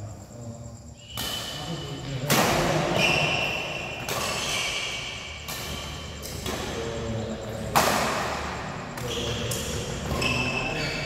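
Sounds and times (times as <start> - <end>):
shoes squeaking on court floor: 1.0 - 11.0
racket hitting shuttlecock: 1.1 - 1.6, 2.2 - 6.8, 7.7 - 10.4.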